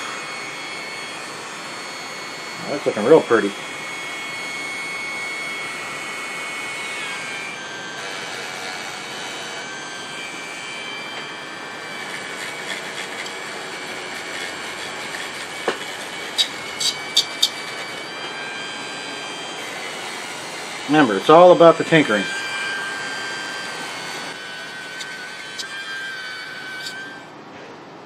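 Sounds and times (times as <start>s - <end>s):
rotary tool whining: 0.0s - 27.4s.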